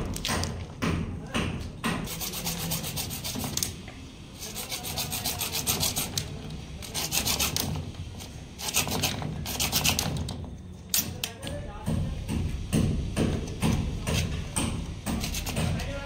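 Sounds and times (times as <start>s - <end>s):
hacksaw sawing plastic pipe: 1.9s - 3.7s, 4.4s - 7.8s, 8.6s - 10.2s, 13.2s - 16.0s.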